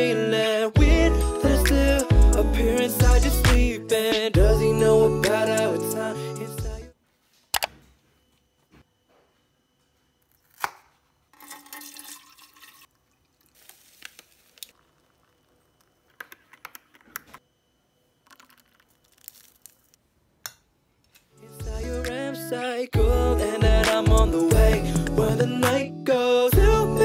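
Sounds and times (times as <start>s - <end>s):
powder pouring into mug: 11.4s - 16.0s, 18.2s - 20.0s
sachet tearing open: 18.4s - 20.0s.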